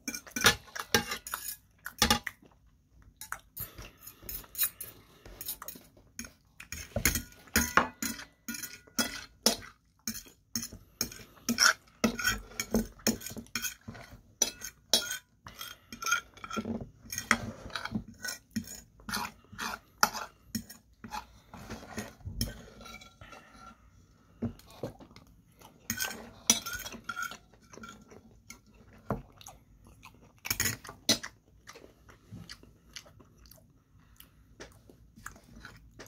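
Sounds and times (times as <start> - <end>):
knife and fork scraping a plate: 0.0 - 2.3, 3.6 - 23.8, 25.8 - 28.7.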